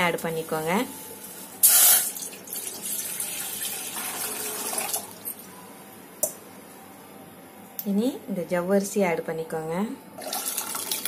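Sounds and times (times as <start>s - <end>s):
water pouring into metal pot: 1.6s - 5.0s, 10.2s - 11.0s.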